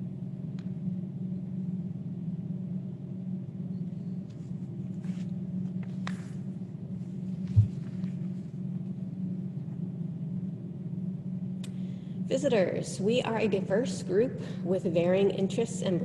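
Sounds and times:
microphone background hum: 0.0 - 16.0
low thump: 7.5 - 7.8.

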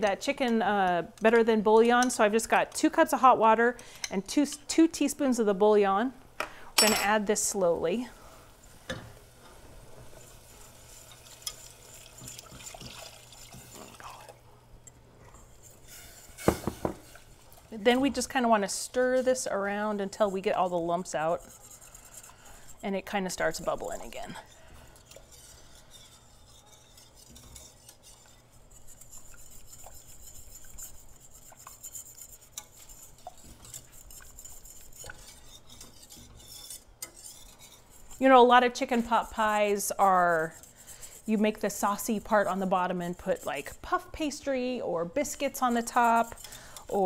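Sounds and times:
whisk scraping a saucepan: 7.4 - 14.4, 15.2 - 47.0
liquid pouring into pan: 10.3 - 14.4
whisk clicking against pan: 25.0 - 38.3.

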